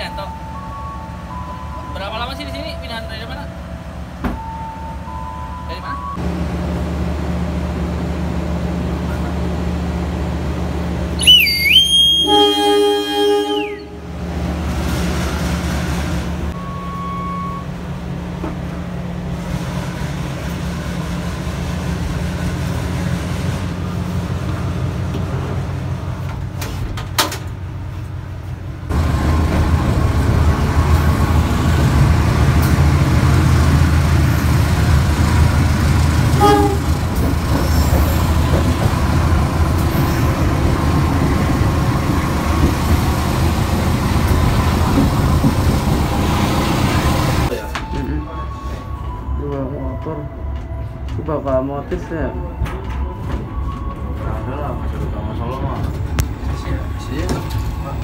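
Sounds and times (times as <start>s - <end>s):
train rumbling along track: 0.0s - 11.3s, 12.2s - 58.0s
train low hum: 0.0s - 58.0s
high whistle tone: 11.2s - 14.0s
train horn: 12.0s - 14.1s, 36.4s - 37.0s.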